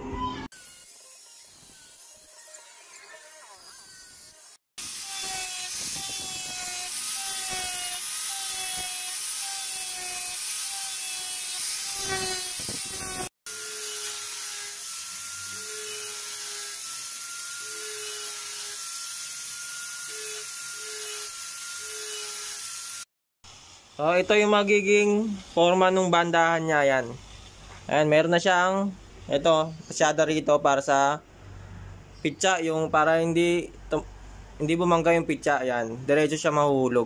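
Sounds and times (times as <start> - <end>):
angle grinder cutting wood: 0.5 - 23.1.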